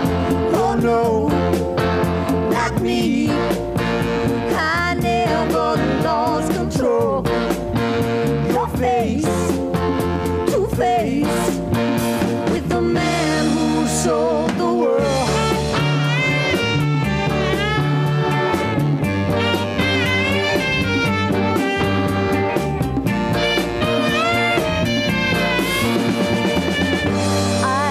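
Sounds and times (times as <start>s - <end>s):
band accompaniment: 0.0s - 27.9s
bass line: 0.0s - 27.9s
woman singing: 0.4s - 1.5s, 2.5s - 3.7s, 4.4s - 7.5s, 8.4s - 9.6s, 10.4s - 11.7s, 12.4s - 15.6s, 27.6s - 27.9s.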